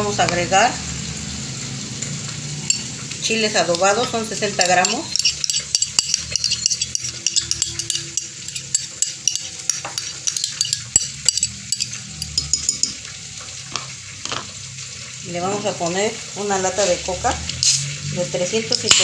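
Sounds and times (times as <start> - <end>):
ribs sizzling in oil: 0.0 - 19.0
spoon scraping and clinking glass: 2.6 - 3.0, 3.6 - 14.5, 16.7 - 19.0.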